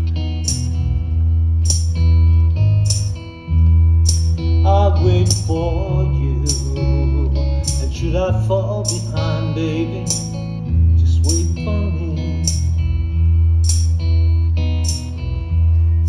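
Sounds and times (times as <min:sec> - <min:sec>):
guitars: 0:00.0 - 0:16.0
sustained bass notes: 0:00.0 - 0:16.0
wavering lead melody: 0:00.0 - 0:16.0
percussion hits: 0:00.4 - 0:01.0, 0:01.6 - 0:04.6, 0:13.6 - 0:14.2.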